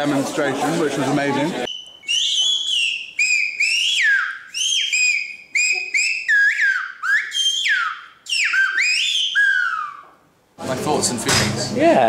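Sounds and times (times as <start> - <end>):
man whistling loud swooping notes: 1.7 - 10.2.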